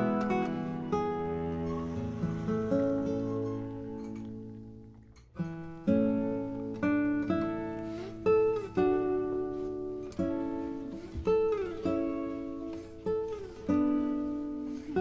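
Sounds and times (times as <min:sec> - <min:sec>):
acoustic guitar music: 0:00.0 - 0:15.0.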